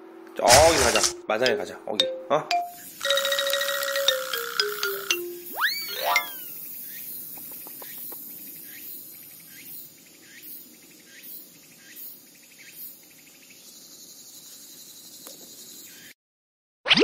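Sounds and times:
insects chirping: 2.7s - 16.1s.

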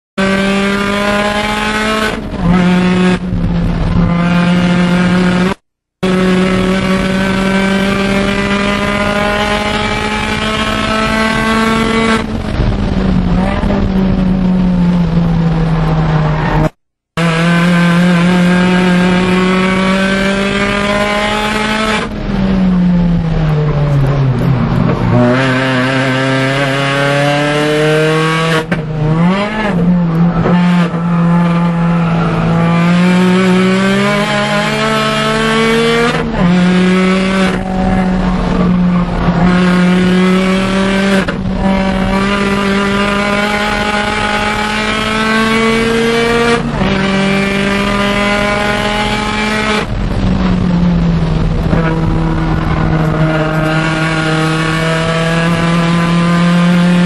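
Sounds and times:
car engine revving: 0.2s - 57.0s.

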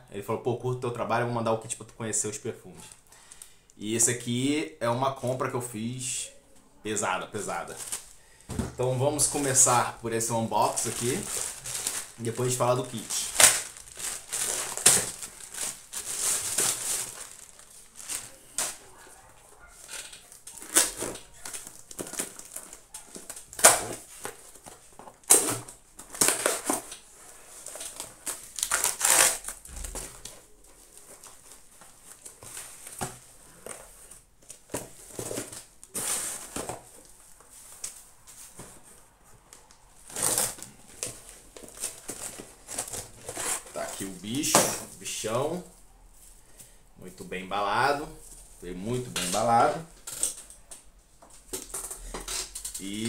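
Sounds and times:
crinkling and rustling packaging: 7.3s - 46.8s, 47.6s - 53.0s.

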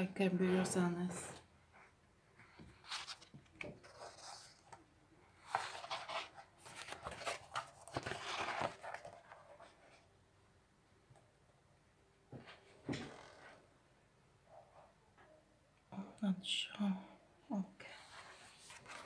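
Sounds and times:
paper pages rustling: 2.5s - 10.1s, 17.9s - 19.0s.

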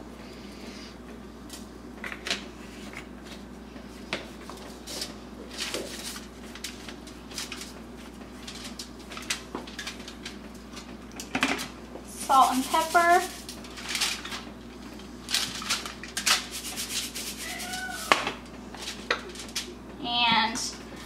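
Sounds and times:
steady low hum: 0.0s - 17.5s, 18.2s - 21.0s
aluminium foil crinkling: 4.8s - 18.1s, 18.8s - 19.8s.

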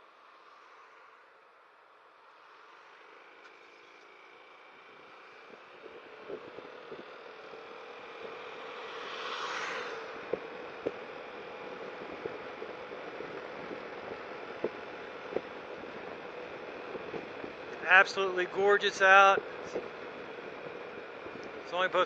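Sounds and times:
scooter engine humming: 3.0s - 22.0s.

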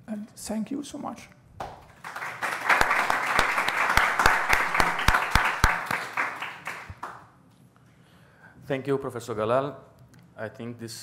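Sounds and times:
audience applauding: 2.0s - 7.3s.

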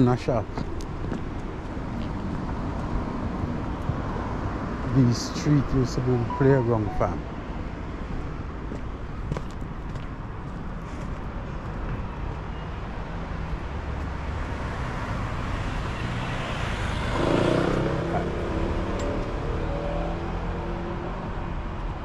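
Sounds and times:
street traffic noise: 0.0s - 22.0s
motor vehicle passing close: 16.2s - 21.0s.

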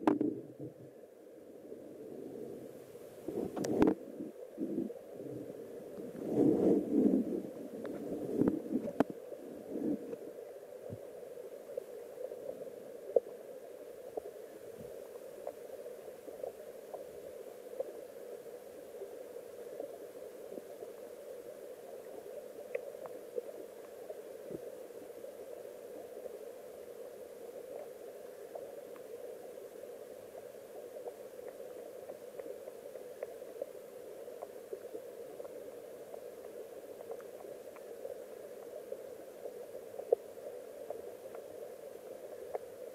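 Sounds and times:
muffled underwater rushing current: 0.0s - 11.0s.

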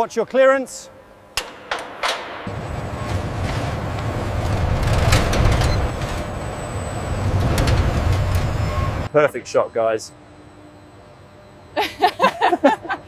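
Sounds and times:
low mechanical rumble: 0.6s - 13.0s
sharp metallic knocks: 1.4s - 2.9s.

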